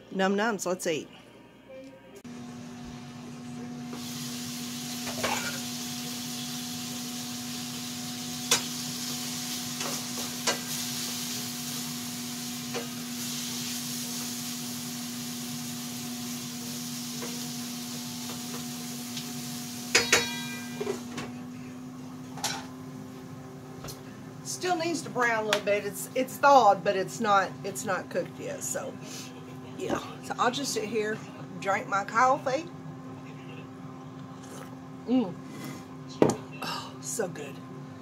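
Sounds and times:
food sizzling in skillet: 3.8s - 21.1s
metal lid clanking onto pan: 20.0s - 20.7s.

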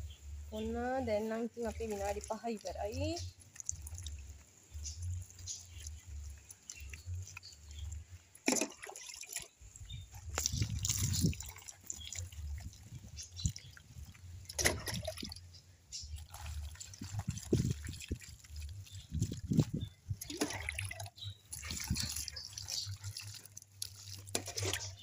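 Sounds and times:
water dripping onto cloth: 0.6s - 25.0s
water pouring and splashing: 0.6s - 25.0s.

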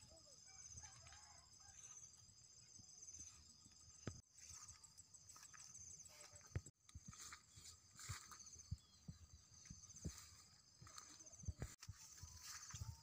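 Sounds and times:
insects chirring: 0.0s - 13.0s
footsteps through grass: 4.2s - 13.0s.

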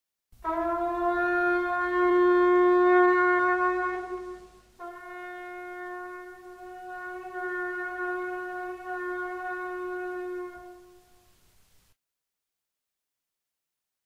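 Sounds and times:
wind instrument long note: 0.4s - 11.4s.

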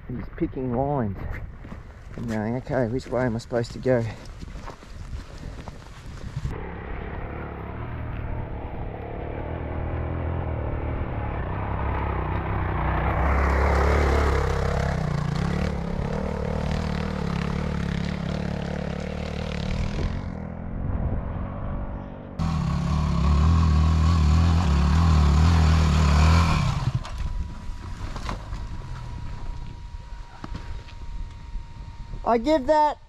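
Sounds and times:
dirt bike engine revving: 6.5s - 32.6s.

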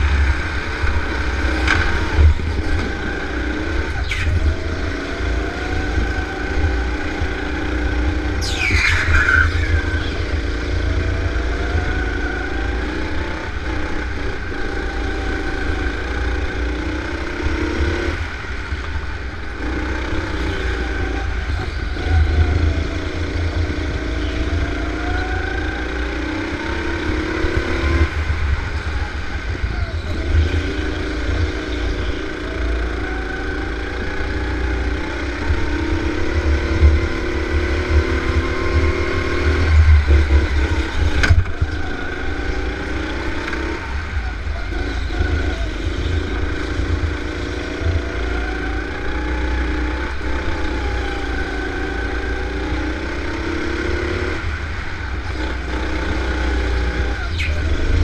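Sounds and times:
go-kart engine revving: 0.0s - 58.0s.

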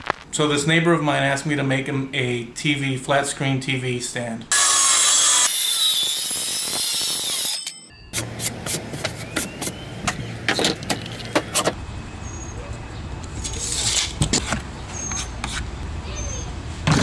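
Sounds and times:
circular saw cutting panel: 4.5s - 11.8s
handling noise: 8.2s - 11.8s.

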